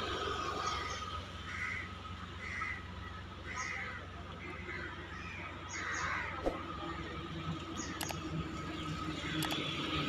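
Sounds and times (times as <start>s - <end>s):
steady low hum: 0.0s - 10.0s
crows cawing: 1.5s - 6.4s.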